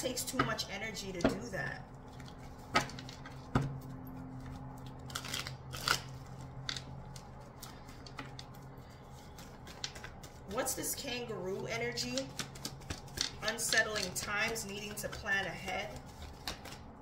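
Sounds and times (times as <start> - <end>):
cards snapping and tapping: 9.2 - 10.5, 12.1 - 15.0, 16.0 - 16.9.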